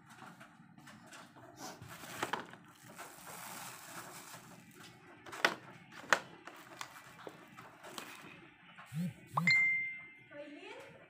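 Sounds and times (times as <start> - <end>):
packaging rustling: 1.9 - 8.3.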